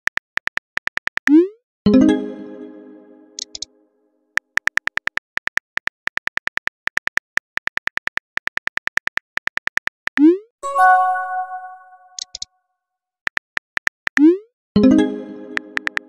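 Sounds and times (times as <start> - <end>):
phone keyboard clicks: 4.6 - 10.0, 13.3 - 14.2
multi-tone chime: 10.6 - 12.2.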